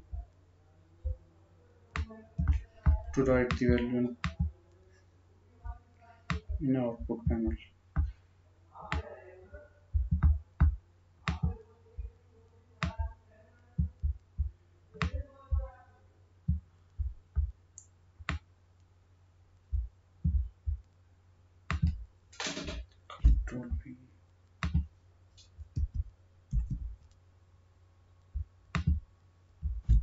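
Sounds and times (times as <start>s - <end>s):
low electrical hum: 0.0s - 30.0s
soft low thumps: 2.0s - 4.6s, 5.6s - 8.2s, 9.9s - 12.2s, 12.8s - 15.8s, 16.4s - 18.5s, 19.6s - 21.0s, 21.7s - 24.0s, 24.6s - 27.1s, 28.2s - 30.0s.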